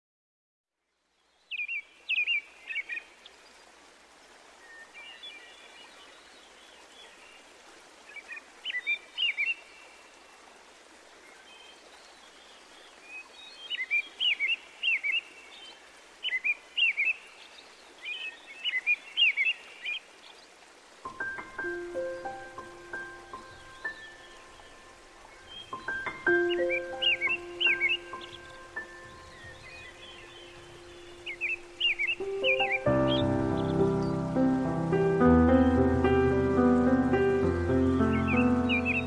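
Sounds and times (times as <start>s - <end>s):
outdoor background hiss: 0.8s - 39.0s
birds chirping: 11.2s - 39.0s.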